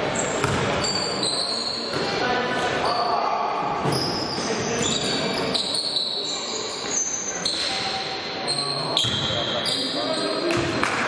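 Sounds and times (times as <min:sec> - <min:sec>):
noise of play in a hall: 0:00.0 - 0:11.0
basketball bouncing on floor: 0:00.4 - 0:00.6.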